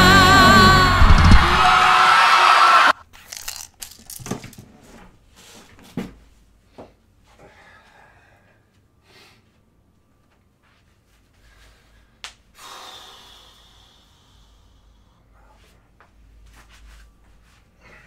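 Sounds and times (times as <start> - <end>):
song playback: 0.0 - 2.9.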